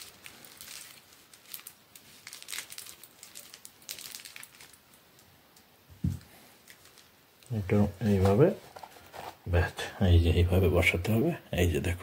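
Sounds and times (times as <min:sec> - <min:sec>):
plastic wrapping crinkling: 0:00.0 - 0:09.5.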